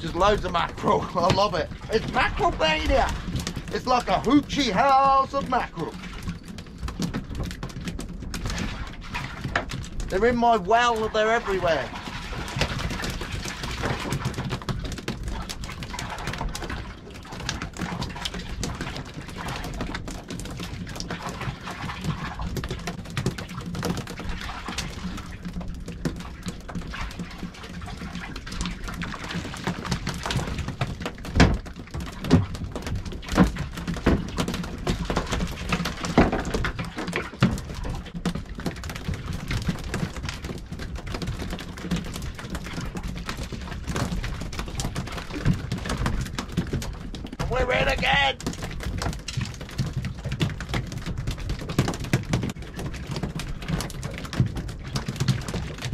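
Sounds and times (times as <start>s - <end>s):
knocks and thuds: 0.0s - 11.6s, 28.1s - 55.9s
water noise: 0.0s - 55.9s
wind: 0.0s - 55.9s.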